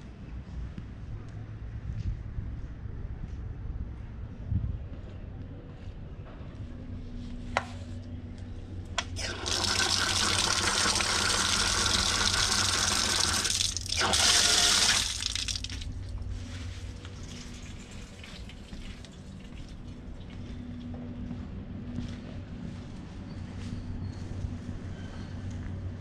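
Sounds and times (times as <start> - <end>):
water gushing from a tap: 9.2 - 16.0, 17.2 - 19.8.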